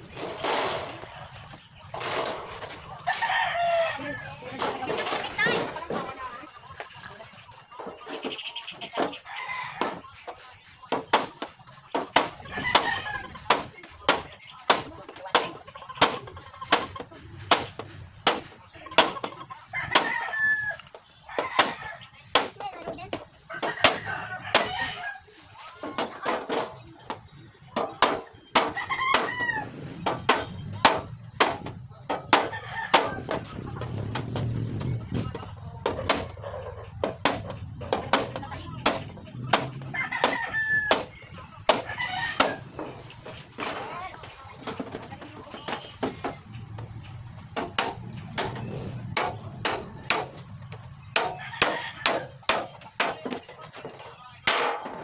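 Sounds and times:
rooster crowing: 3.1 - 4.5, 19.7 - 22.0, 23.5 - 25.3, 28.8 - 29.8, 32.4 - 33.4, 39.8 - 41.1, 41.8 - 42.7, 51.2 - 52.4.

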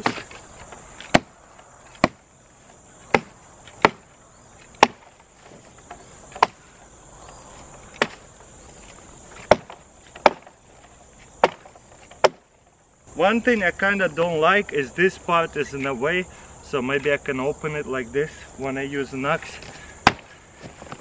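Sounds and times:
hatchet chopping branches: 0.0 - 2.4, 3.0 - 12.6, 19.4 - 21.0.

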